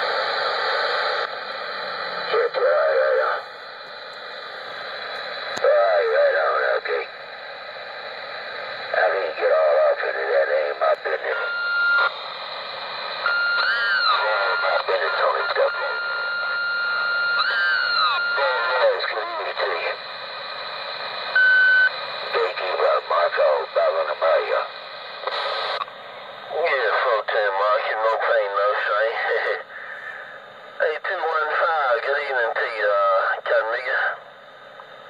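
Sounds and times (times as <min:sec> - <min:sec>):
radio static hiss: 0:00.0 - 0:35.0
garbled warbling radio transmissions: 0:02.2 - 0:03.6, 0:05.4 - 0:07.1, 0:08.8 - 0:12.0, 0:13.3 - 0:20.9, 0:21.9 - 0:25.8, 0:26.5 - 0:34.3.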